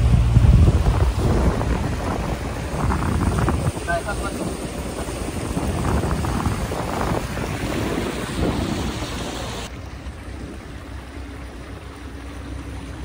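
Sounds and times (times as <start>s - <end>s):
wind buffeting microphone: 0.0s - 11.1s
low rumble: 0.0s - 13.0s
water rushing past boat: 0.0s - 13.0s.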